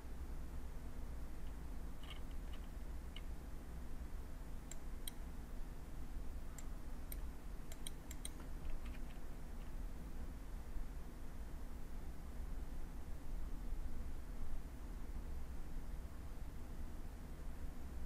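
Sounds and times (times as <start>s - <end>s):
low steady hum: 0.0s - 18.0s
computer mouse clicking: 1.4s - 3.3s, 6.6s - 9.7s
scroll wheel ticking: 6.6s - 8.5s.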